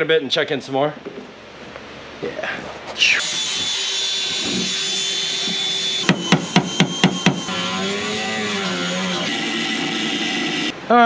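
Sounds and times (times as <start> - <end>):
power tool whining: 3.0 - 10.8.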